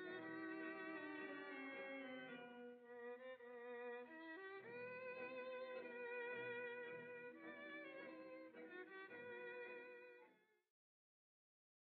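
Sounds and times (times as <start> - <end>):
violin playing slow held notes: 0.0 - 10.3.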